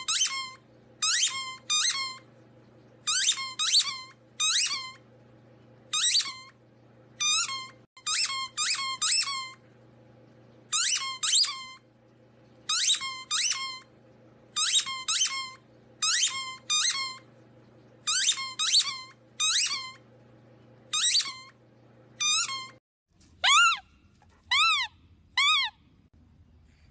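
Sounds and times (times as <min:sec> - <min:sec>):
high-pitched squeaks: 0:00.0 - 0:02.2, 0:12.7 - 0:13.9, 0:18.1 - 0:20.0, 0:20.9 - 0:21.6, 0:22.2 - 0:22.8, 0:23.4 - 0:25.8
faint low hum: 0:00.0 - 0:26.9.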